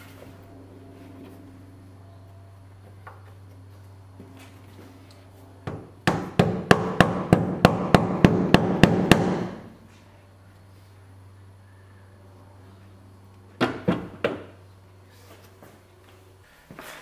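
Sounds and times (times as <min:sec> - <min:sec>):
rubber mallet striking wood: 0:05.7 - 0:09.6.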